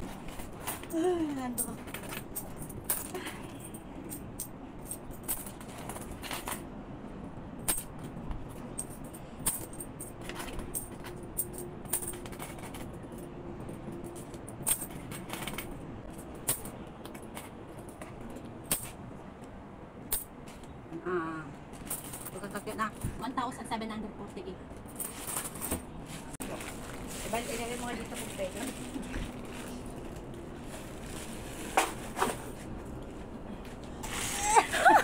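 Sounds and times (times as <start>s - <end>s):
metal coins clinking: 0.3s - 6.6s, 7.6s - 19.0s, 20.1s - 20.3s, 24.9s - 25.9s.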